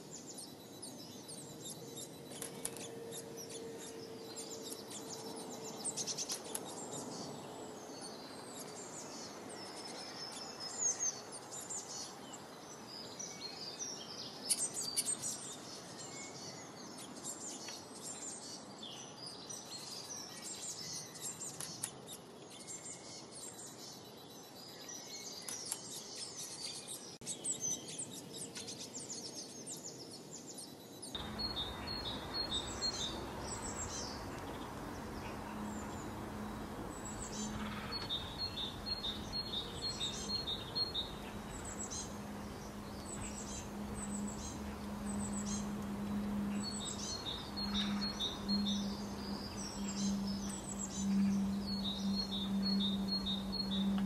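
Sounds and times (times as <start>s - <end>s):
soft steady hiss: 0.0s - 54.0s
songbirds chirping: 0.0s - 54.0s
low hum: 31.2s - 54.0s.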